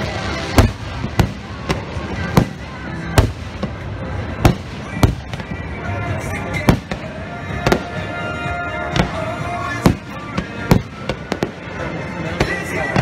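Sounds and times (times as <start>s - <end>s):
firework shells booming: 0.5s - 2.6s, 3.2s - 5.6s.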